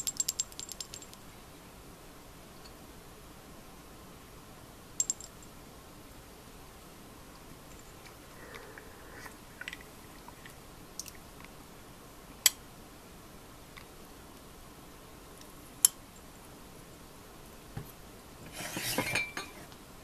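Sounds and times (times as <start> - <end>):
glass clinking: 18.9 - 19.6.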